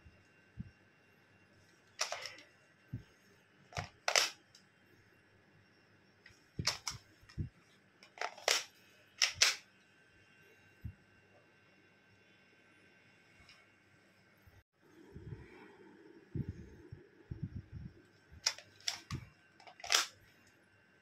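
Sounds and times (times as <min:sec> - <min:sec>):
toy pistol plastic snaps: 0:03.8 - 0:04.4, 0:08.2 - 0:09.6, 0:18.4 - 0:20.1.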